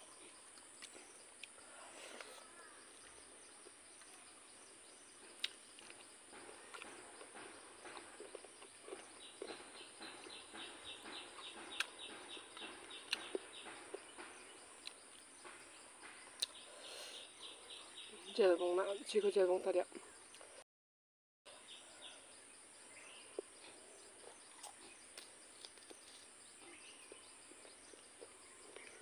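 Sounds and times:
insect chirping in pulses: 0.0s - 20.3s.

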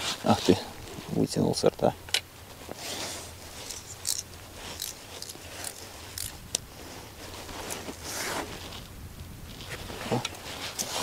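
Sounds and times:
scratchy rustles: 2.6s - 8.9s, 9.5s - 11.0s.

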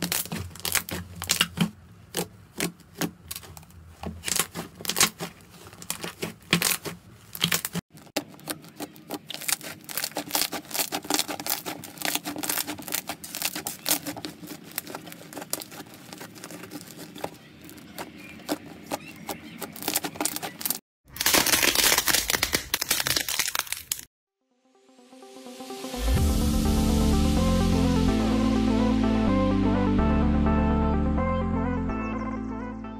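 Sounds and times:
sticky slime crackles and pops: 0.0s - 19.0s, 19.7s - 24.1s.

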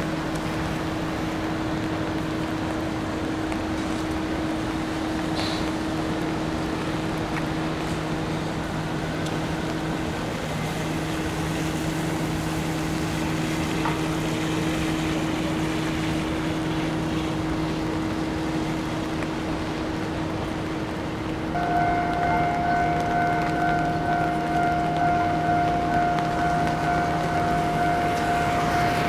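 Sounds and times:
low mechanical hum: 0.0s - 29.0s
rain and wind: 0.0s - 29.0s
level-crossing warning bell: 21.5s - 29.0s.

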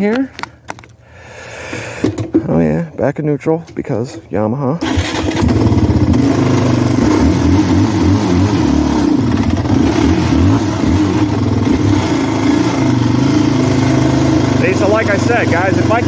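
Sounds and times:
quad engine revving hard: 4.8s - 16.0s.

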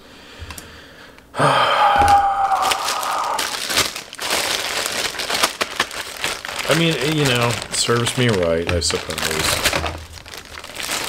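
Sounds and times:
packaging crinkling: 2.0s - 11.0s.

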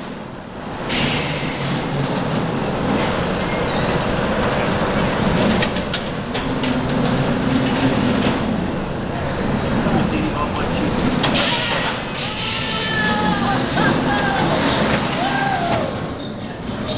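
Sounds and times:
roller coaster rumbling on track: 0.0s - 16.9s
sudden rush of noise: 10.7s - 16.2s.

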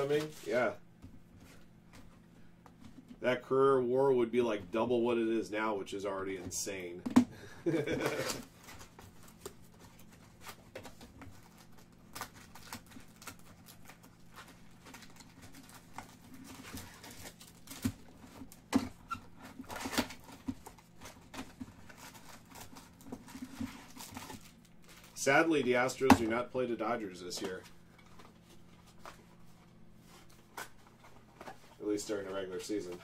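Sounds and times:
faint steady hum: 0.0s - 33.0s
cardboard tearing: 7.7s - 8.8s.

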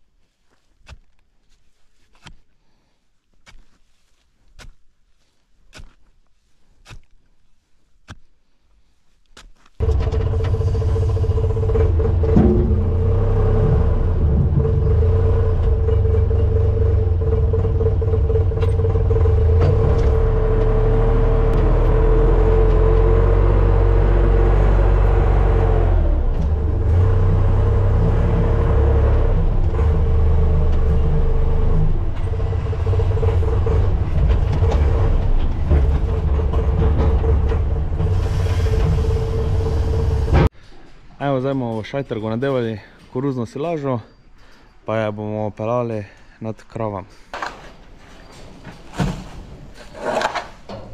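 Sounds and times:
steady whine: 9.8s - 20.2s
tractor engine running: 9.8s - 40.5s.

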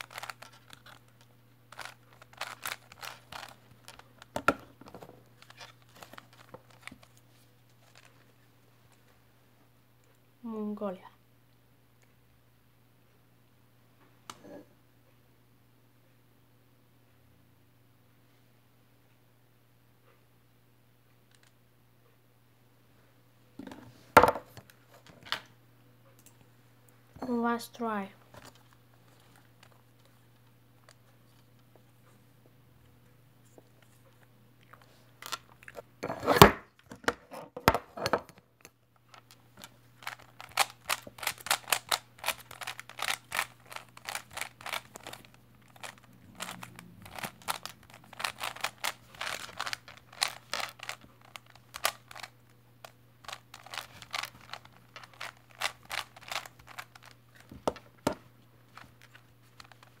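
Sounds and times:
puzzle cube clicking turns: 0.0s - 4.6s, 40.0s - 52.3s, 53.2s - 57.8s
faint steady hum: 0.0s - 60.0s.

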